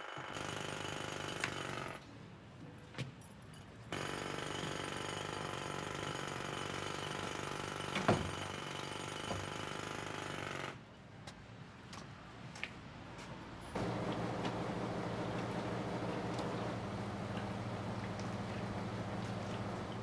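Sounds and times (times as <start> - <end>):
power tool rattling: 13.8 - 20.0.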